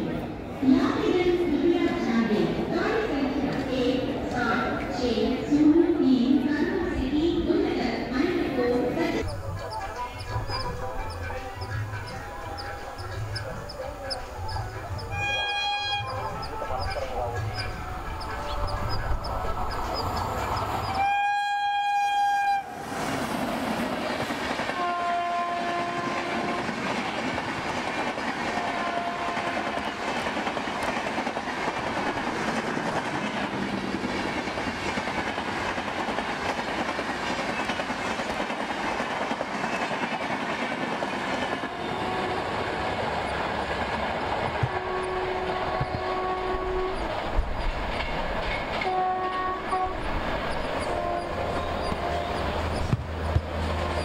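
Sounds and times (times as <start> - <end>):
train wheels rumbling on rails: 6.5 - 54.0
locomotive horn: 9.4 - 19.7, 20.8 - 22.8, 24.8 - 26.8, 28.6 - 29.8, 41.6 - 43.1, 44.5 - 47.2, 48.8 - 50.2, 50.8 - 52.8.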